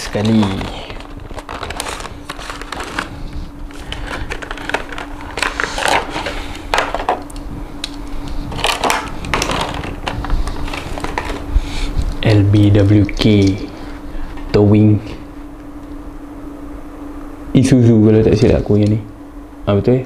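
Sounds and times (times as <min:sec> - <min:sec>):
plastic crinkling: 0:00.0 - 0:07.4, 0:08.2 - 0:11.5
steady low hum: 0:00.0 - 0:20.0.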